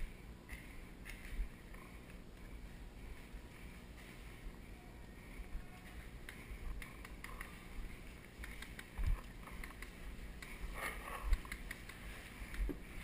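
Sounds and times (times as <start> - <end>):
faint clicks: 6.2 - 7.6, 8.2 - 10.6, 11.3 - 12.8.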